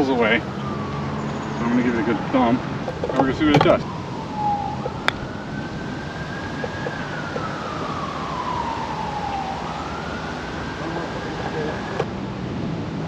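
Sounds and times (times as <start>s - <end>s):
siren wailing: 0.0s - 12.1s
putter striking golf ball: 2.8s - 3.8s.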